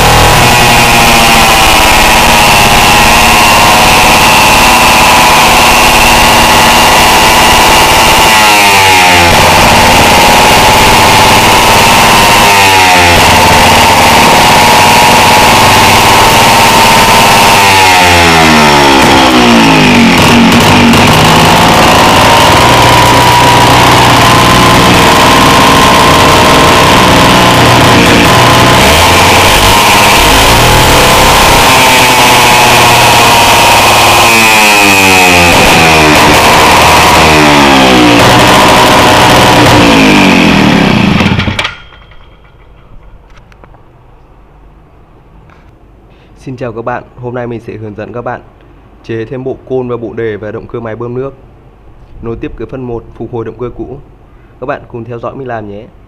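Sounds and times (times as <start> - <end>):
small two-stroke engine running: 0.0 - 42.5.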